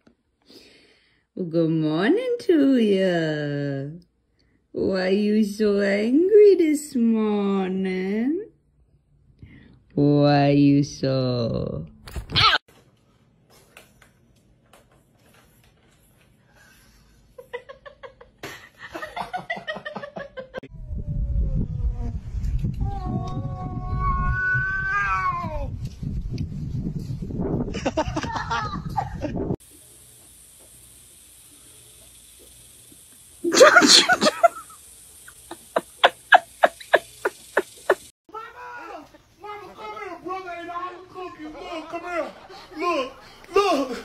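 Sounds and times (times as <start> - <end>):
loud low rumbling: 20.7 - 24.4
person laughing high-pitched: 27.8 - 29.3, 33.4 - 38.1.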